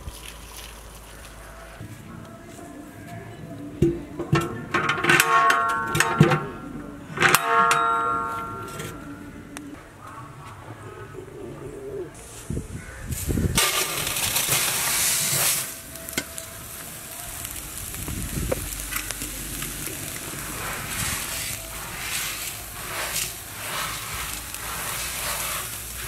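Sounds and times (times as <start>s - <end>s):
hand scraping salt in pot: 13.6s - 17.1s, 18.5s - 26.0s
salt pouring into metal pot: 13.6s - 26.0s.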